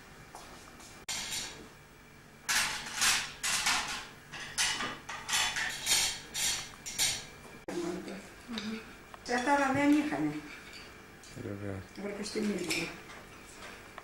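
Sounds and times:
dishes and cutlery clattering: 2.5 - 7.2, 10.4 - 11.0.

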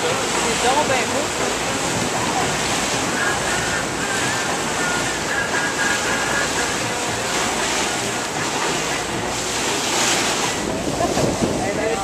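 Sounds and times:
waves breaking against rocks: 0.0 - 12.0
wind buffeting microphone: 6.2 - 12.0.

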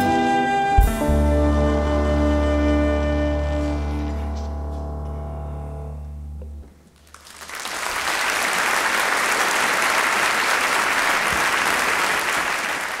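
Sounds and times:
audience applauding: 7.0 - 13.0.

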